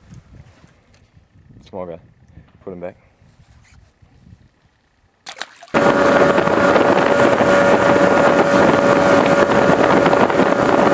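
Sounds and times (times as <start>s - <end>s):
wind on microphone: 0.0s - 4.8s, 5.7s - 10.9s
outboard motor running: 5.7s - 10.9s.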